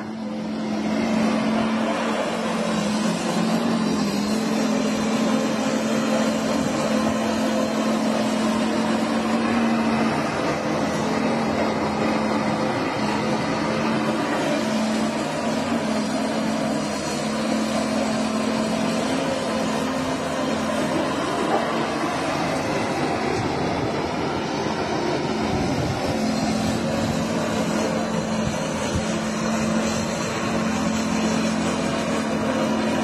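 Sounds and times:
excavator diesel engine running: 0.0 - 33.0.

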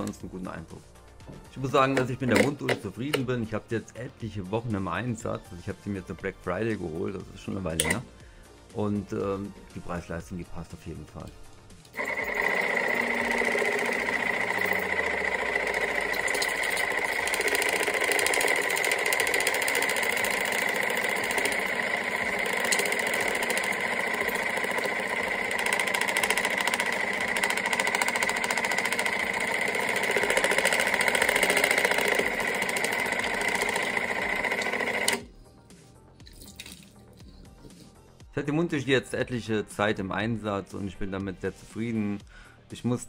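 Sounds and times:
electric pump humming: 11.9 - 35.4.

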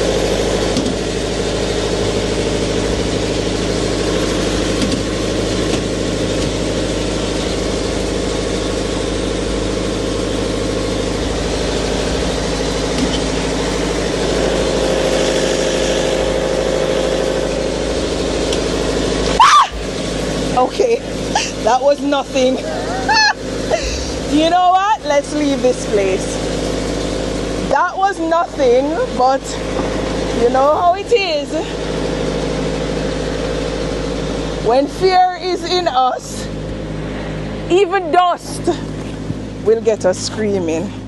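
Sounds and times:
diesel generator humming: 0.0 - 41.0
person crying out: 19.4 - 19.9, 22.6 - 24.3.

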